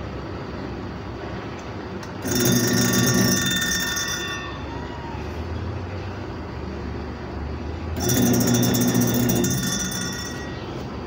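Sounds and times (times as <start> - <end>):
washing machine motor humming: 2.2 - 4.7, 7.7 - 11.0.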